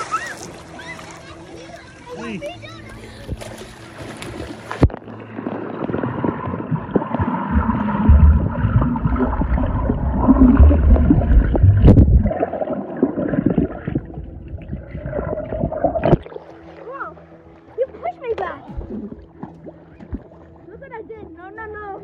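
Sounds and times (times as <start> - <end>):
muffled water gurgling: 4.5 - 20.7.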